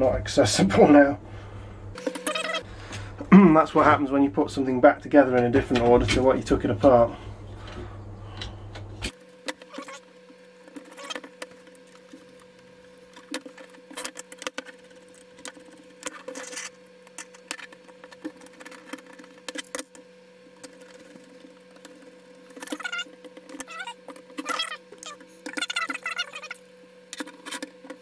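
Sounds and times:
faint hum: 0:00.0 - 0:28.0
short squeaks: 0:09.6 - 0:10.1, 0:10.9 - 0:11.2, 0:22.6 - 0:26.6.

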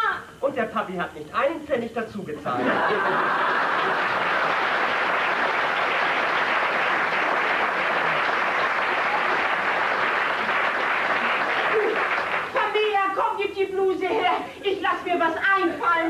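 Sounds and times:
audience applauding: 0:02.9 - 0:12.9.

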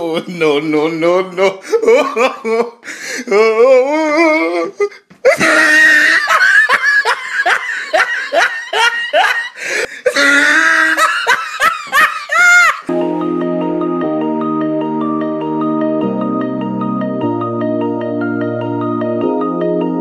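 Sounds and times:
person laughing hard: 0:01.4 - 0:12.9.

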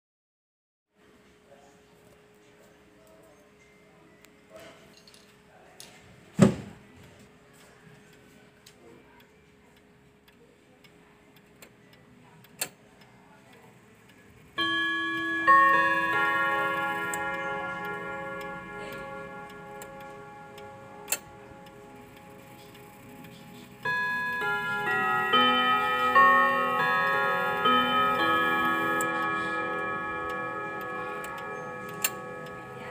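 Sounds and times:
wall clock chiming on rods: 0:14.5 - 0:32.9.

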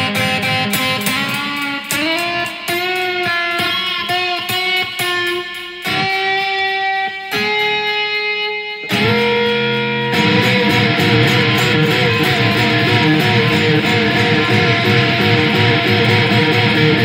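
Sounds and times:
ringing guitar notes: 0:00.0 - 0:17.0
strummed guitar: 0:00.0 - 0:17.0.

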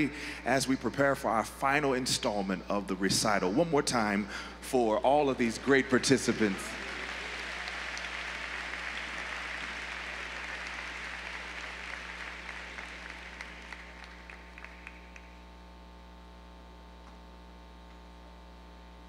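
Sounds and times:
large audience applauding: 0:05.4 - 0:15.5.

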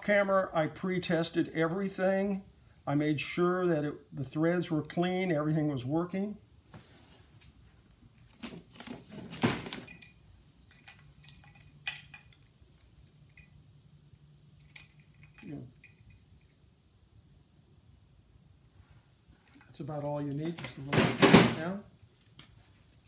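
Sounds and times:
wrench clinking and scraping metal: 0:09.7 - 0:12.5, 0:14.6 - 0:16.6.

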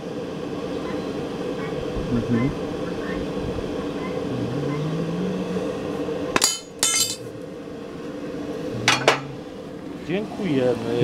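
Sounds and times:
steady low hum: 0:00.0 - 0:11.0
steel striking steel clinks: 0:06.4 - 0:07.2.

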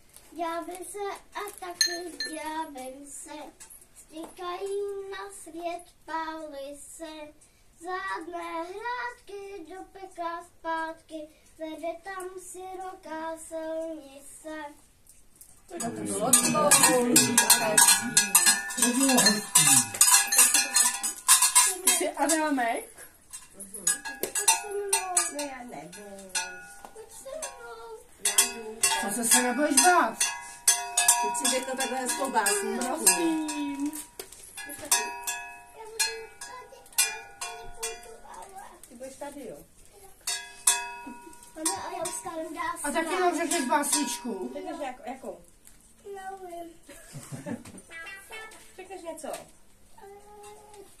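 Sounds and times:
child singing unaccompanied: 0:00.3 - 0:14.9, 0:24.3 - 0:25.4, 0:26.9 - 0:28.9, 0:31.4 - 0:34.0, 0:34.7 - 0:39.0, 0:41.5 - 0:43.9, 0:46.0 - 0:46.9, 0:47.9 - 0:48.8, 0:50.0 - 0:51.0
small bells jangling: 0:01.4 - 0:04.2, 0:15.7 - 0:45.4.

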